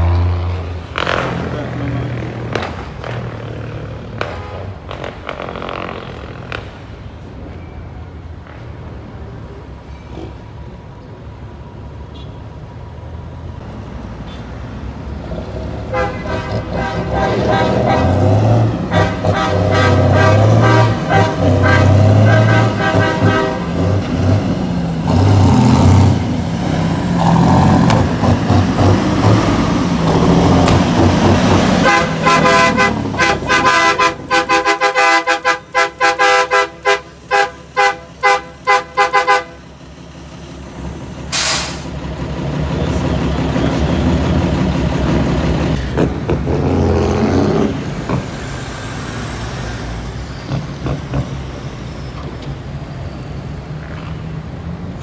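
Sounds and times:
truck engines running: 0:00.0 - 0:55.0
truck horn short blasts: 0:15.9 - 0:18.2, 0:18.9 - 0:23.7, 0:31.8 - 0:39.6
air hiss: 0:41.3 - 0:41.9.

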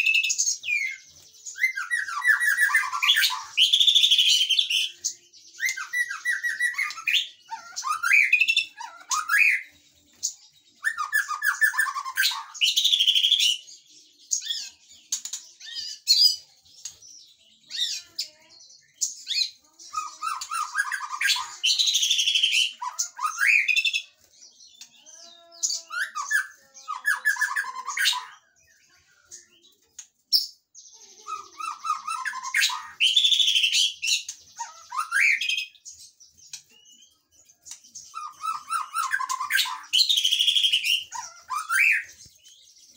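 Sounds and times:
bird singing: 0:00.0 - 0:42.9.

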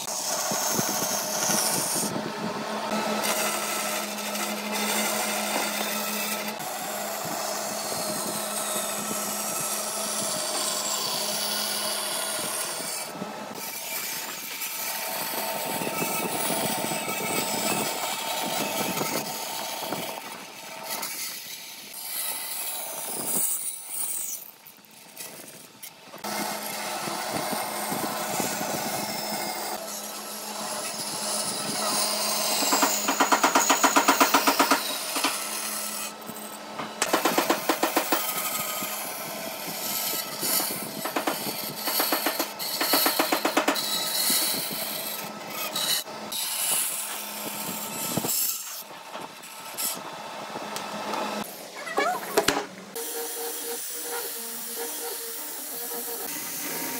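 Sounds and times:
rasping strokes on wood: 0:26.2 - 0:48.9.

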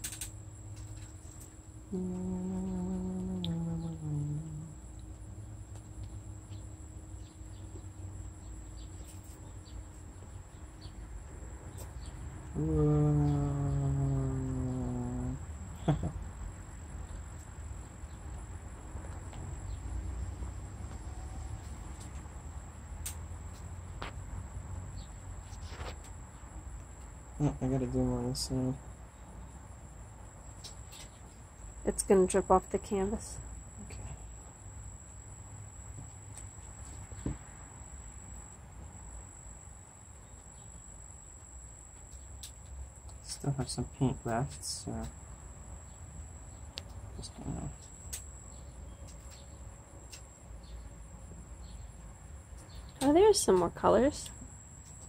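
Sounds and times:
high-pitched insect trill: 0:00.0 - 0:23.5
high-pitched whine: 0:01.9 - 0:04.8.

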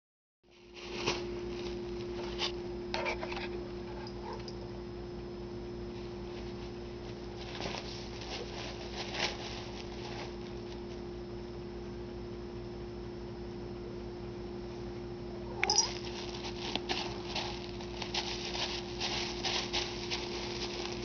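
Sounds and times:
steady electrical hum: 0:00.5 - 0:21.0
cat scuffing toy on carpet: 0:15.8 - 0:21.0.

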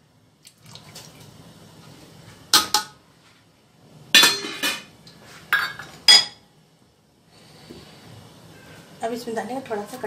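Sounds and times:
metal utensils clanking on pot: 0:04.2 - 0:04.9.

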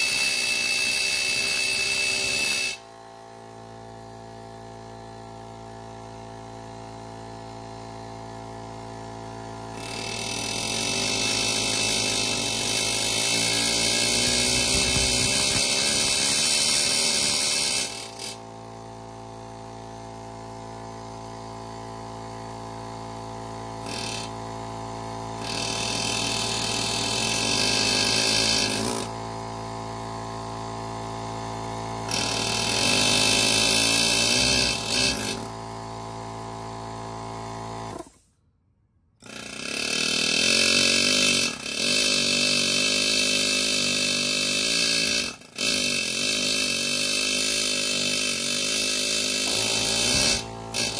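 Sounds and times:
pneumatic air chisel hammering: 0:00.0 - 0:02.9, 0:06.5 - 0:38.4, 0:39.2 - 0:50.9
air compressor running: 0:00.0 - 0:38.4, 0:39.2 - 0:50.9.

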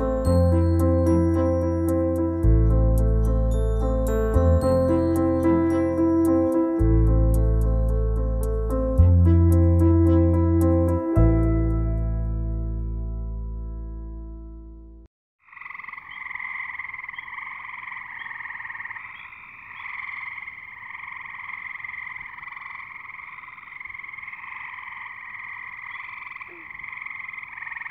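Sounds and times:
chorus of calling frogs: 0:15.4 - 0:27.9.

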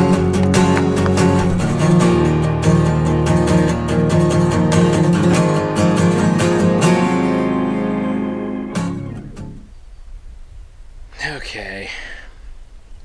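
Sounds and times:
acoustic guitar strumming chords: 0:00.0 - 0:09.7.

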